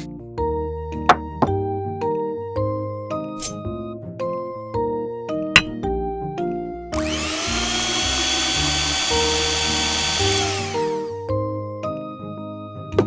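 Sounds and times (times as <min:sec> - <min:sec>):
small electric motor whirring: 0:06.9 - 0:11.2.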